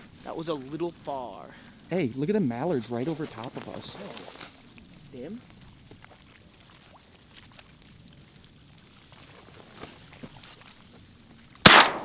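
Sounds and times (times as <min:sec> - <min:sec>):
shotgun blast: 0:11.6 - 0:12.0.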